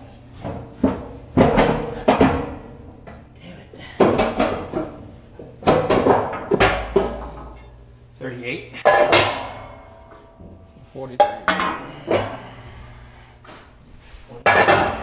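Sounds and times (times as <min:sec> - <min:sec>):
metal cans clanking: 0:08.8 - 0:09.8, 0:11.2 - 0:12.4, 0:14.4 - 0:15.0.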